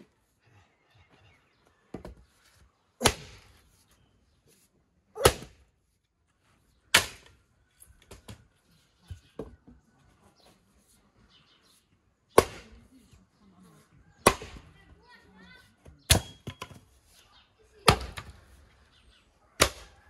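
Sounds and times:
axe splitting firewood: 3.0s - 3.7s, 5.2s - 5.9s, 6.9s - 8.5s, 12.3s - 13.2s, 14.2s - 14.8s, 15.8s - 17.0s, 17.8s - 18.6s, 19.6s - 20.0s.

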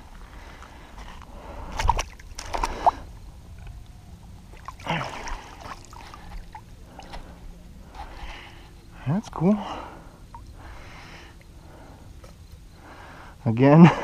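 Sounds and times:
fish splashing in shallow water: 1.6s - 3.2s, 4.5s - 7.2s.

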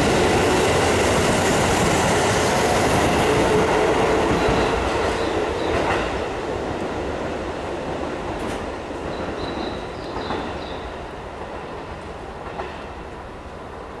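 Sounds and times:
train wheels clattering over rail joints: 8.3s - 10.8s.

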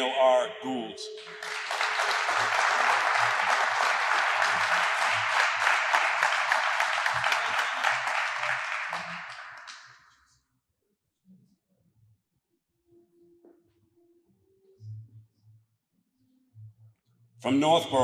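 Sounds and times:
audience applauding: 1.2s - 10.2s.

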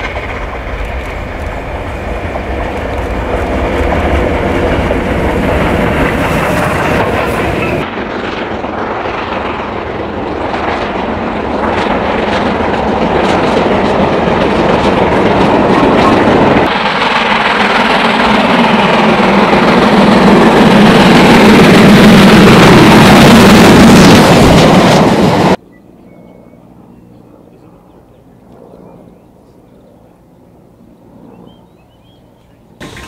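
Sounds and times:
steam locomotive chuffing: 0.0s - 7.9s, 11.0s - 25.6s, 32.8s - 33.0s
train rushing past: 0.0s - 25.6s, 32.8s - 33.0s.

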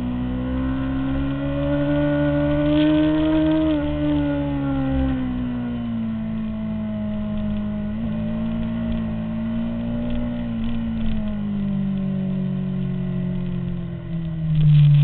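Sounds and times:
motorcycle engine running at speed: 0.0s - 15.0s.

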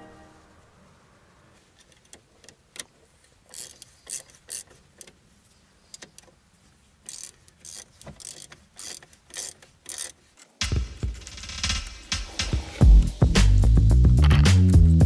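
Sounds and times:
wrench clicking on bolts: 1.8s - 5.2s, 7.0s - 10.6s.

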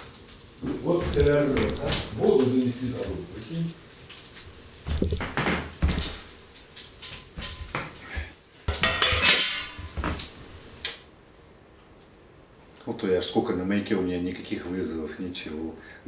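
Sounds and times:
pots and dishes clattering: 7.0s - 10.2s.

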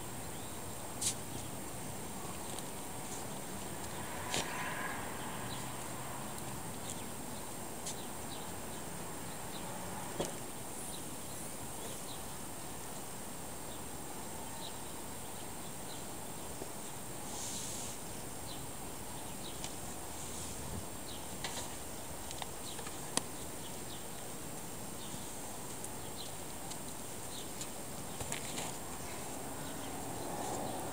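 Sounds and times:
outdoor background hiss: 0.0s - 30.9s.

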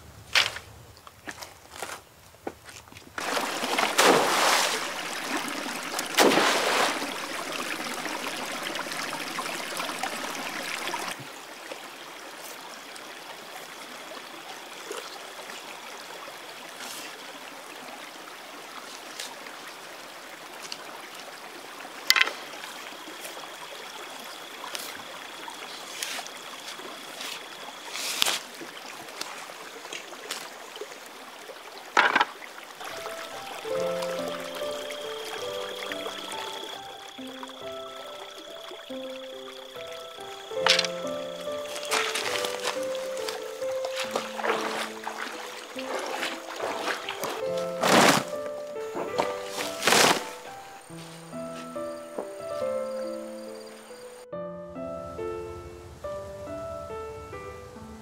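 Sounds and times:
stream water running: 0.0s - 54.2s
bark snapping off sticks: 40.6s - 41.0s.

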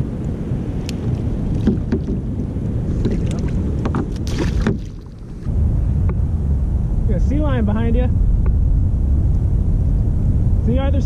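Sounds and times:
wind buffeting microphone: 0.0s - 11.0s
water splashing against hull: 0.7s - 5.5s.

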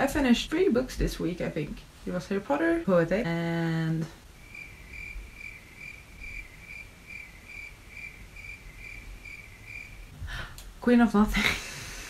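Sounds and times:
cricket chirping: 4.4s - 10.1s.

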